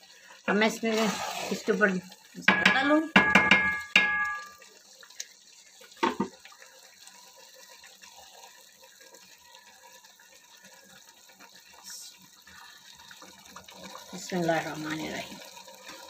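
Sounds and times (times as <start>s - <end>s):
rice pot simmering hiss: 0.0s - 16.0s
knock: 2.5s - 4.4s, 6.0s - 6.3s.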